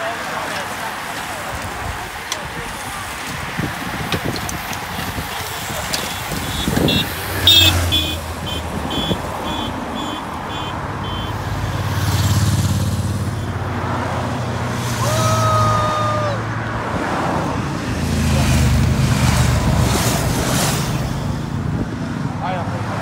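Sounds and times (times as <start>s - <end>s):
cars driving past: 0.0s - 23.0s
car horn: 6.0s - 12.0s.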